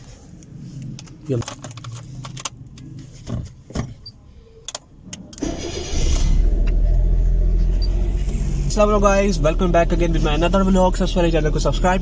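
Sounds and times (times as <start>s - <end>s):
car engine idling: 4.4s - 12.0s
car starter cranking: 5.0s - 8.5s.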